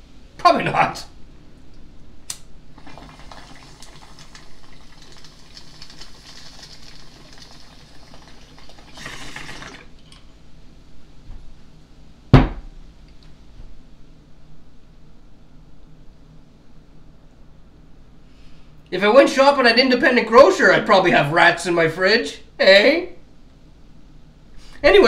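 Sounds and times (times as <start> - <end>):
water bubbling in a bong: 2.8 - 10.2.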